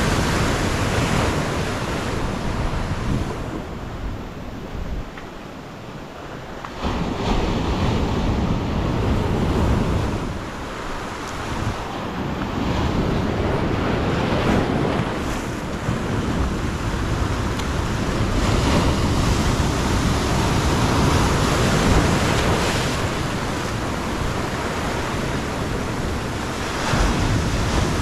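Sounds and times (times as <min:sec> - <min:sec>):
wind buffeting microphone: 0:00.0 - 0:28.0
surf breaking over rocks: 0:06.2 - 0:28.0.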